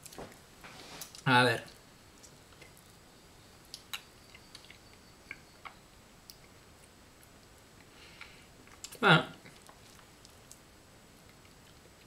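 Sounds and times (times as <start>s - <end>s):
wet mouth clicks: 3.7s - 6.5s
person chewing: 3.7s - 12.0s.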